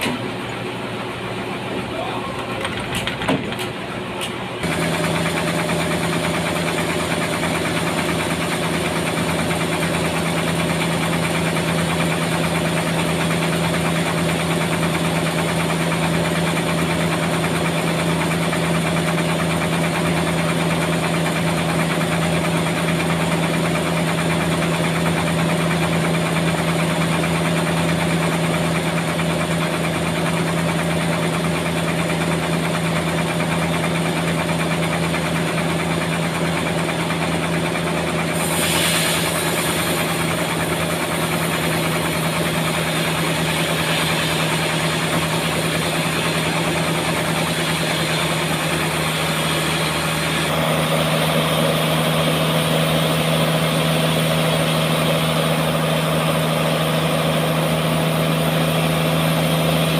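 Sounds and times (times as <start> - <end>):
sawmill machinery drone: 0.0 - 59.9.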